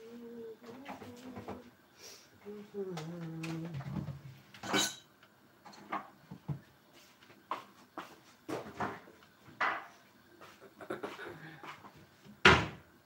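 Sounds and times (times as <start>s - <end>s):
kitchen things knocking and clattering: 3.8s - 6.6s.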